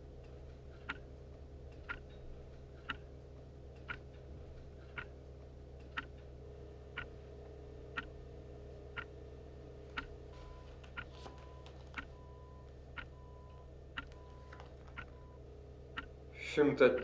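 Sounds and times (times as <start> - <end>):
low steady hum: 0.0 - 17.0
clock ticking: 0.8 - 1.1, 1.8 - 2.1, 2.8 - 3.1, 3.8 - 4.0, 4.9 - 5.2, 5.9 - 6.1, 10.0 - 10.2, 13.0 - 14.3, 14.9 - 15.3, 15.9 - 16.2, 16.8 - 17.0.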